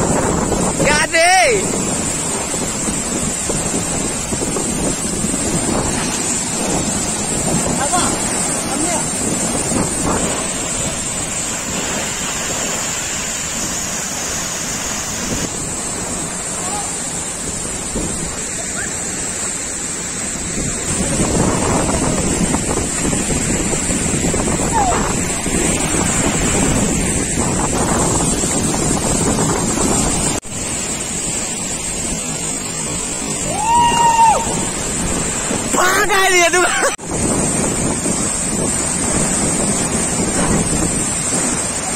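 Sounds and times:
waterfall rushing: 0.0 - 41.9
wind buffeting microphone: 0.0 - 41.9.

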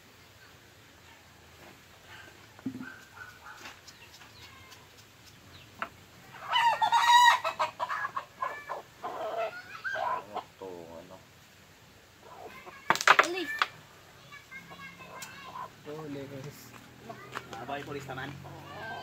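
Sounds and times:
rooster crowing: 6.4 - 8.1.

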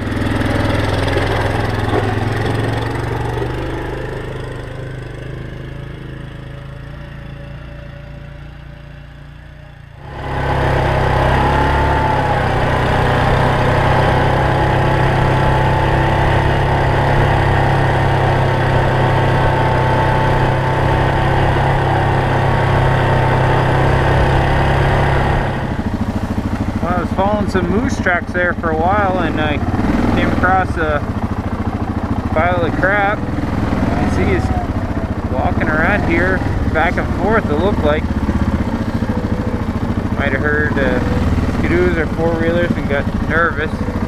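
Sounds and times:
atv engine running: 0.0 - 44.0.

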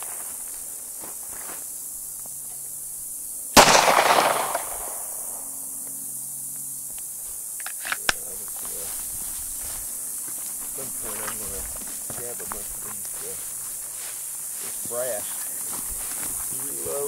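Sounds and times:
handgun shot: 3.6 - 5.2
small sharp ticks: 5.8 - 8.4.

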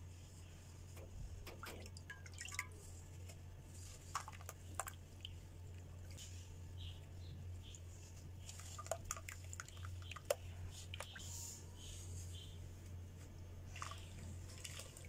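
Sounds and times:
steady low hum: 0.0 - 15.0
splashes and drips in water: 1.0 - 6.4, 7.6 - 11.2, 13.7 - 15.0.

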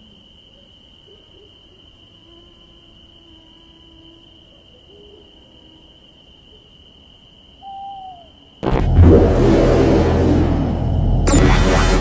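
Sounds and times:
insects trilling: 0.0 - 8.6
faint low hum: 8.6 - 12.0.

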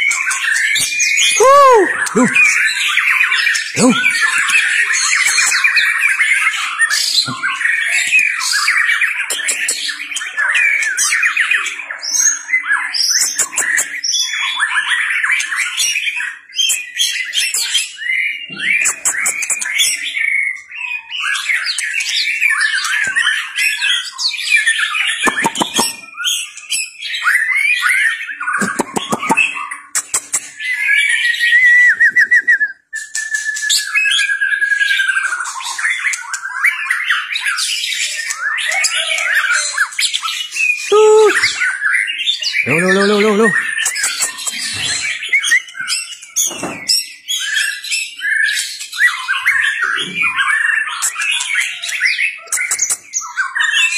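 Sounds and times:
harsh rattling bird calls: 0.0 - 31.5, 33.3 - 53.9
bird whistling and warbling: 0.0 - 53.9
trilled bird whistle: 28.7 - 36.8.

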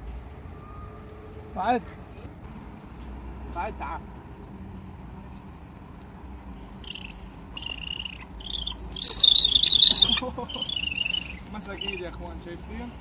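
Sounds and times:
eagle calling: 6.7 - 12.1.

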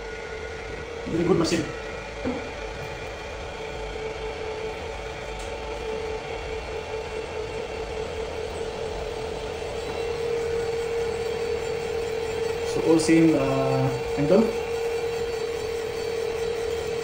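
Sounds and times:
drill humming boring into metal: 6.8 - 17.0.

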